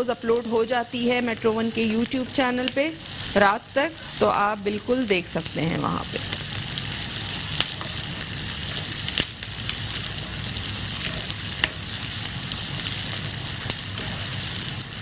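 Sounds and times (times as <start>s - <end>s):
onions sizzling in oil: 0.0s - 15.0s
spoon stirring in pan: 11.0s - 11.9s, 12.6s - 14.5s.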